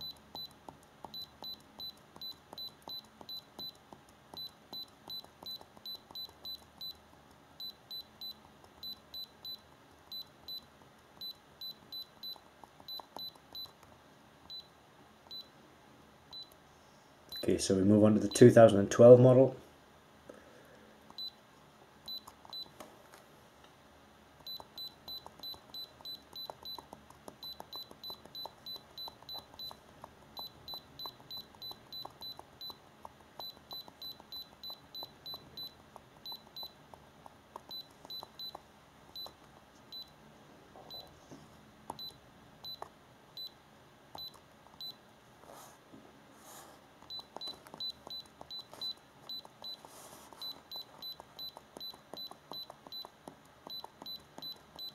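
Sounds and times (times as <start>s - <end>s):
scanner high-pitched beeps: 24.5s - 32.8s, 33.4s - 36.8s.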